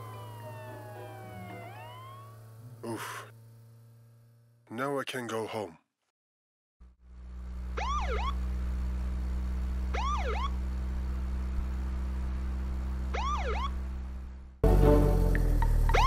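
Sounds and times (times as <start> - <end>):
police siren whoops: 0.0 - 2.4, 7.8 - 8.4, 10.0 - 10.5, 13.2 - 13.7
steady low hum: 0.0 - 5.3, 6.8 - 16.0.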